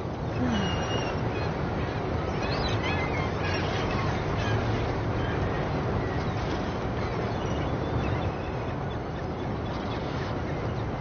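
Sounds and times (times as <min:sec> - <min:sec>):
boat engine rumble: 0:00.0 - 0:11.0
faint bird calls: 0:00.3 - 0:05.7.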